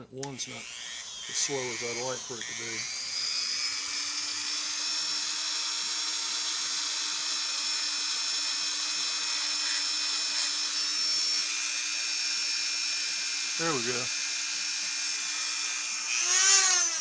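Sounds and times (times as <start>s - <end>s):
rotary tool high-pitched whine: 0.2s - 17.0s
bit grinding gasket material: 16.1s - 17.0s.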